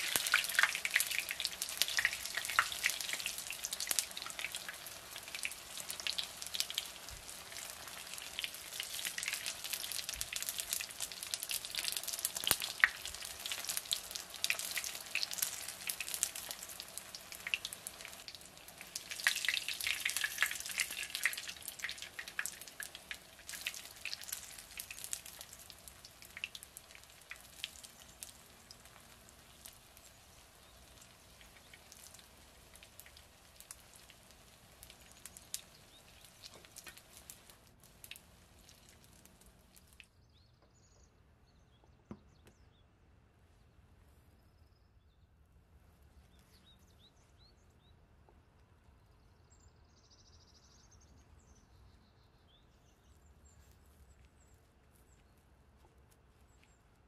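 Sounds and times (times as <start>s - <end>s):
patties sizzling in hot oil: 0.0s - 40.0s.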